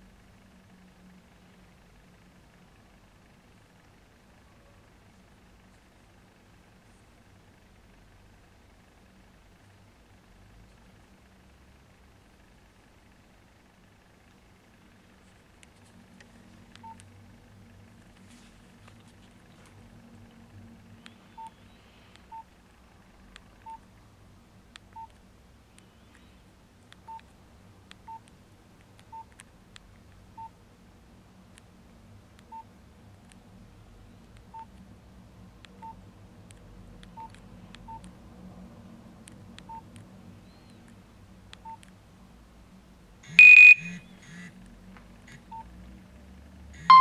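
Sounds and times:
keypad beeps: 16.8 - 17.0, 43.3 - 44.0, 46.8 - 47.0
higher phone tone: 43.3 - 44.0, 46.8 - 47.0.

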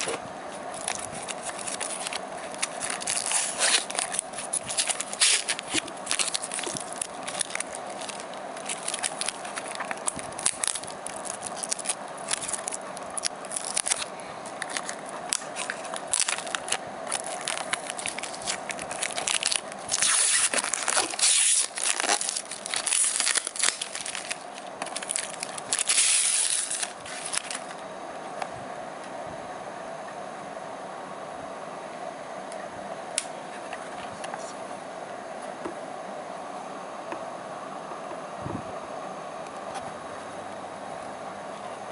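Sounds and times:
plastic packaging crinkling: 0.0 - 27.8.

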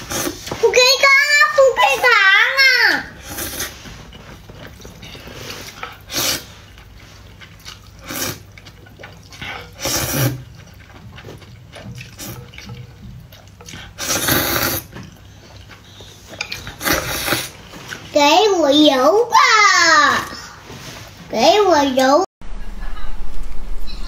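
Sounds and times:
noodles slurped: 0.0 - 0.8, 3.0 - 18.2.

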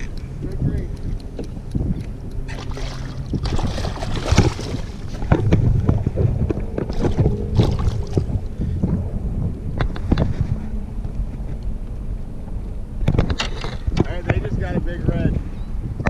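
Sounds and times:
wind buffeting microphone: 0.0 - 16.0
water splashing: 1.0 - 8.8.

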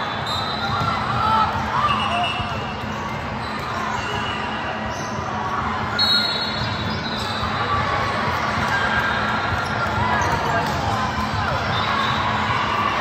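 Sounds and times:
players and spectators noise: 0.0 - 13.0.

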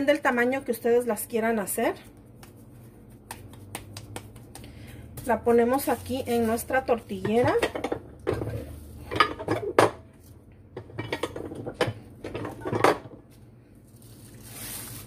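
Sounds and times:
plastic sheet rustling: 13.9 - 15.0.

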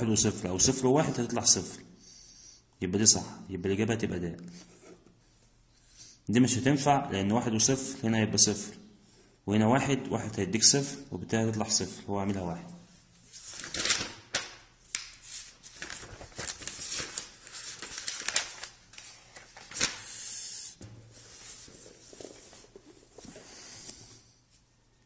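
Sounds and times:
book pages rustling: 13.3 - 20.0, 21.2 - 24.1.

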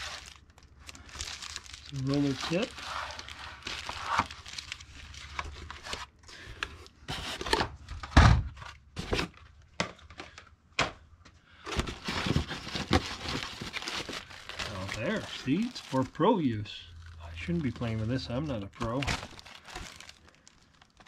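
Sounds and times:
packing crinkling and scraping: 0.0 - 7.6, 11.6 - 21.0.

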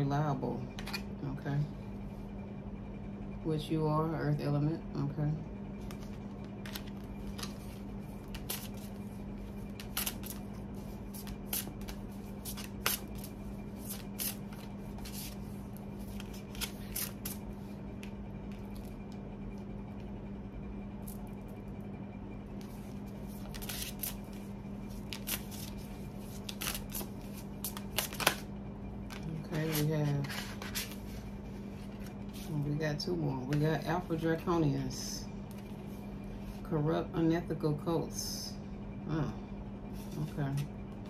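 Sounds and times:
steady low hum: 0.0 - 41.0
cards being shuffled: 5.8 - 17.4, 22.6 - 28.5, 29.1 - 31.2.

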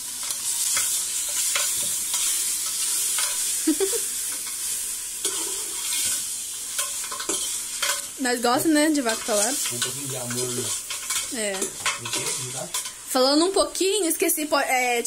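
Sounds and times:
meat sizzling in hot oil: 0.0 - 15.0
spoon scraping metal pot: 5.2 - 6.2, 9.2 - 13.0.

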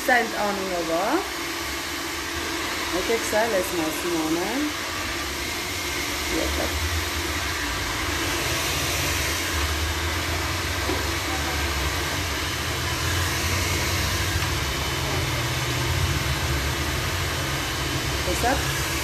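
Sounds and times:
hair dryer blowing: 0.0 - 19.0.

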